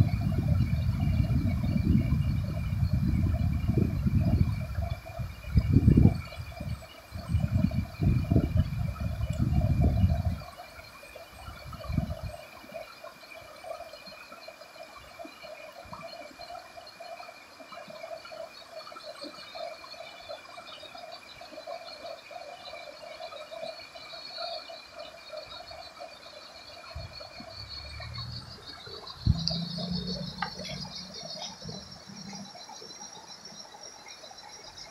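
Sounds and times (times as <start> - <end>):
continuous high tone: 0.0 - 34.9
chorus of calling animals: 6.5 - 34.9
river running over stones: 12.2 - 34.9.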